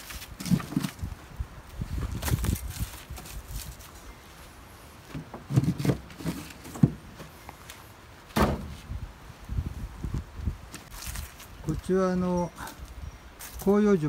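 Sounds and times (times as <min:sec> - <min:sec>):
low thuds and knocks: 0:08.3 - 0:08.9.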